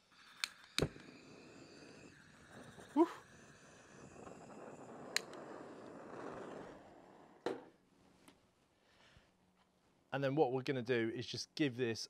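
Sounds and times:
butane torch hissing: 0.0s - 7.4s
torch igniter clicks: 0.3s - 1.1s, 5.0s - 5.5s.

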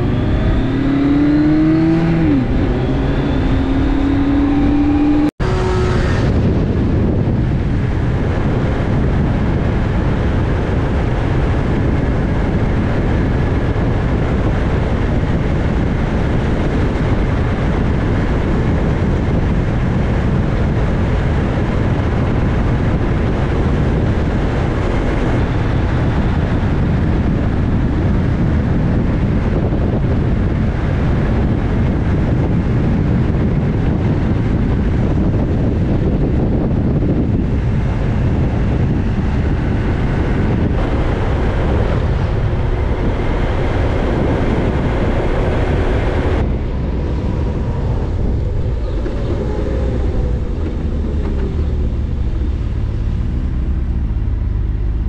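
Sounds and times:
motorcycle engine running: 0.0s - 55.0s
wind rush and road noise: 0.0s - 55.0s.

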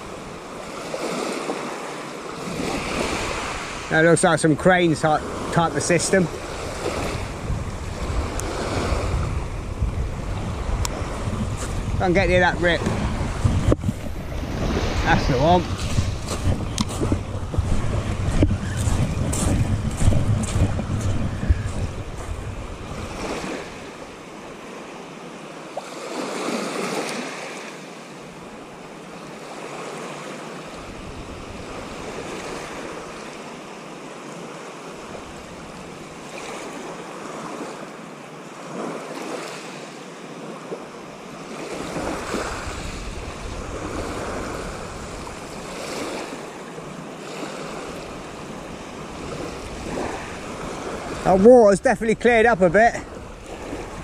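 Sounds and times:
waves on shingle beach: 0.0s - 54.0s
wind buffeting microphone: 2.4s - 24.6s, 30.8s - 33.3s, 41.6s - 46.5s, 47.6s - 54.0s.

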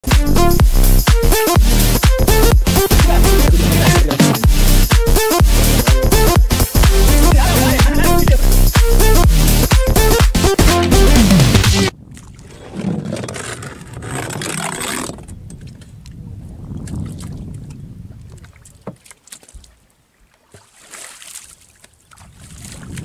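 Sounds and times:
dance music: 0.0s - 11.9s
water noise: 11.8s - 23.0s
wind: 11.9s - 23.0s
hand splashing water: 20.5s - 23.0s.

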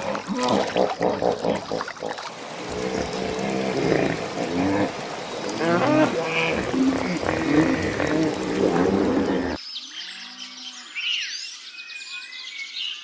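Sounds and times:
hippos grunting and honking: 0.0s - 9.6s
water splashing and trickling: 0.0s - 9.6s.

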